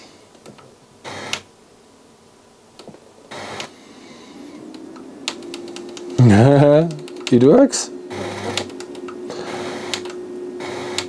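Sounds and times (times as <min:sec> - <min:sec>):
radio hiss: 0:00.0 - 0:01.6, 0:02.8 - 0:11.0
faint clicks: 0:04.7 - 0:06.2, 0:09.9 - 0:10.2.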